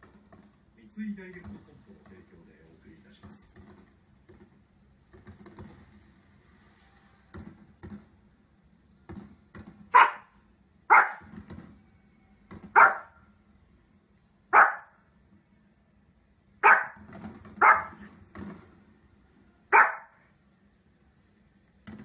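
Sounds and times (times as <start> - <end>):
small dog barking: 9.9 - 11.3, 12.7 - 13.2, 14.5 - 15.0, 16.6 - 17.0, 17.6 - 18.0, 19.7 - 20.2.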